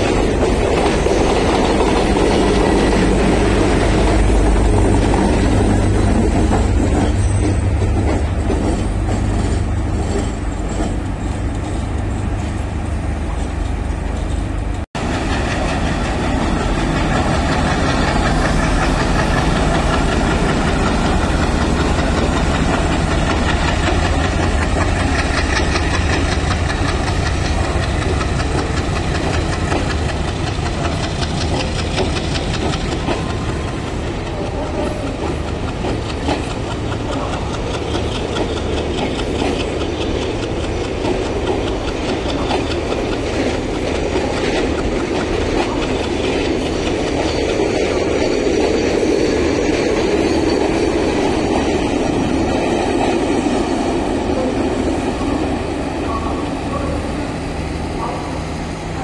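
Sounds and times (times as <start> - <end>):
train wheels clattering on rails: 0.0 - 59.0.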